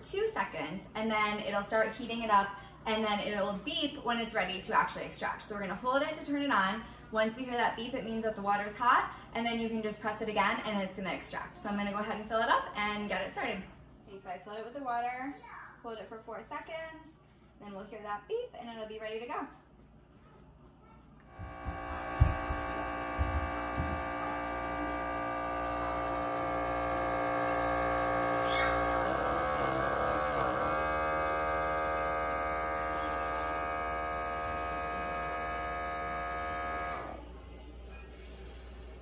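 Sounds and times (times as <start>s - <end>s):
electric pump humming: 21.2s - 37.9s.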